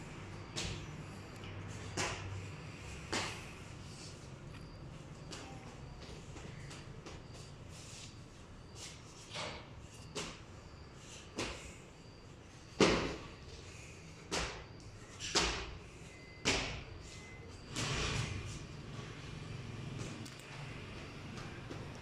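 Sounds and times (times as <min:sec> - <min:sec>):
child's feet thudding on stairs: 0:12.8 - 0:13.3.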